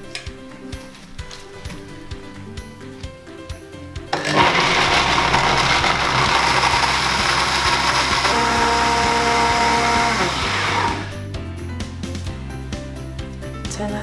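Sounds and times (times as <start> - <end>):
blender running: 4.2 - 11.2.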